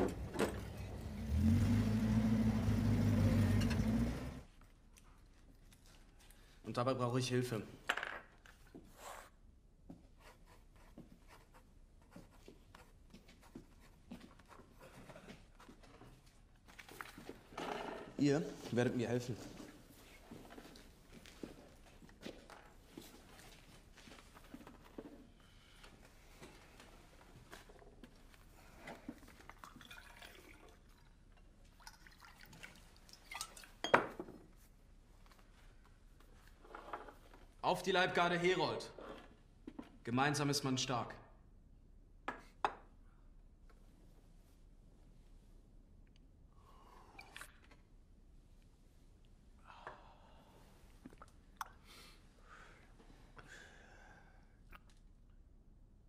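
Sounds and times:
drink being poured: 29.5s - 31.0s
glasses clinking: 33.8s - 34.2s.

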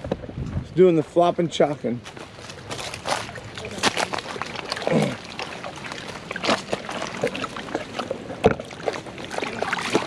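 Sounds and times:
water lapping against rocks: 2.1s - 10.0s.

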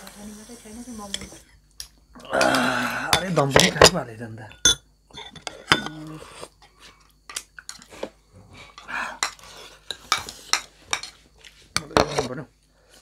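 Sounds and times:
utensils clinking on plates: 3.1s - 6.1s, 8.7s - 12.4s.

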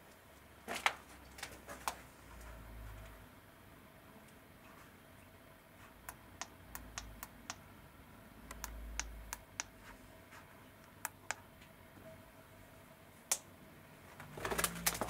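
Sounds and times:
sharp clicks and ticks: 6.1s - 7.6s, 8.5s - 9.8s.

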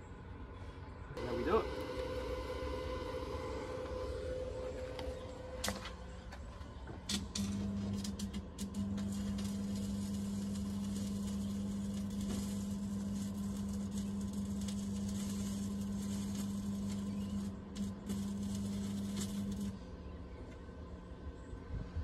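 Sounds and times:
inverter humming: 1.0s - 21.6s
welding arc crackling hiss: 1.2s - 5.9s, 7.1s - 19.8s.

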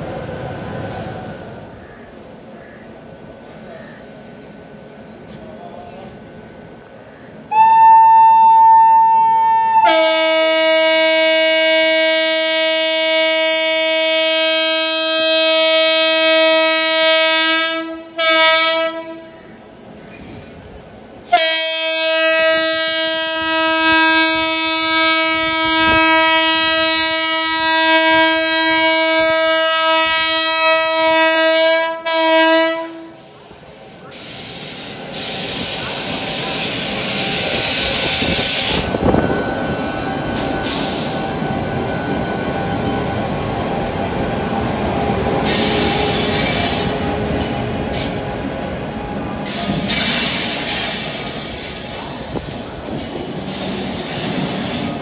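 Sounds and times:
locomotive horn blasts: 7.5s - 19.3s, 21.3s - 33.2s.

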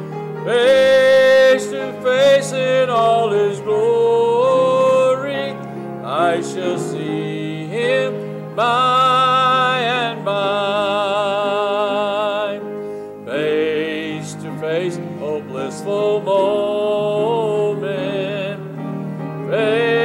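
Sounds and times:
congregation singing a hymn: 0.0s - 20.0s
instrumental accompaniment: 0.0s - 20.0s.

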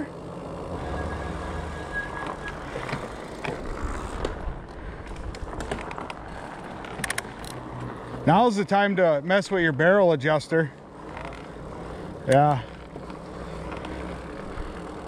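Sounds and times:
tyres rolling rumble: 0.0s - 15.0s
high squeal: 0.7s - 4.0s.

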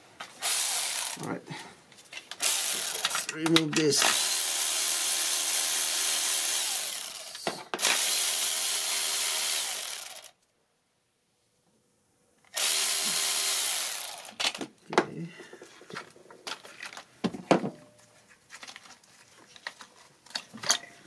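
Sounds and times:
electric ratchet motor whine: 2.4s - 3.2s, 4.0s - 10.3s, 12.5s - 14.3s.

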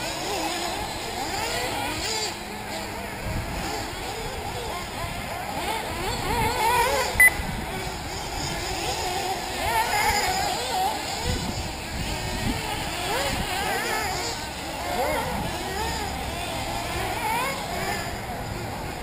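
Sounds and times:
rc buggy engines whining: 0.0s - 19.0s
short high beep: 7.2s - 7.4s.

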